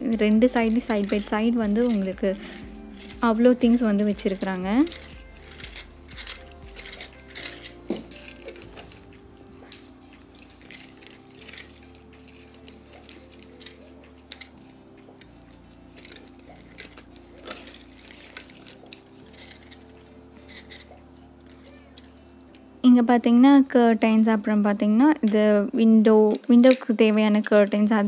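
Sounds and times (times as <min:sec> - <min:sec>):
faint background music: 0:00.0 - 0:28.0.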